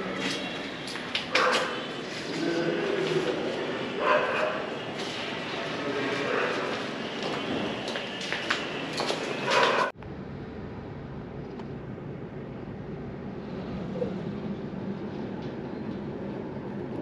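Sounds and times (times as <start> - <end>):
vehicle rumble: 4.6 - 17.0.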